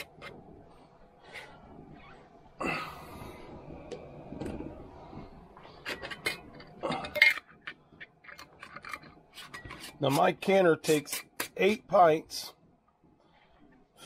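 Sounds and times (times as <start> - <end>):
metal lids clinking on glass jars: 5.9 - 10.3.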